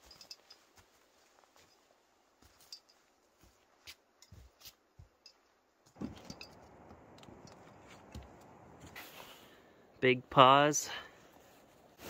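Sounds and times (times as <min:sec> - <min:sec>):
footsteps through undergrowth: 0:00.0 - 0:05.2.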